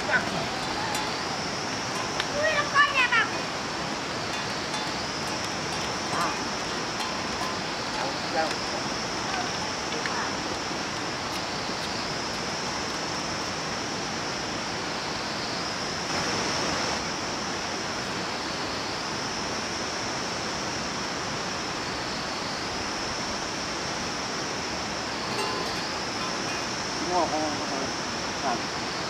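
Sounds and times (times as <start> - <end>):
shrill hiss: 20.8 - 29.0.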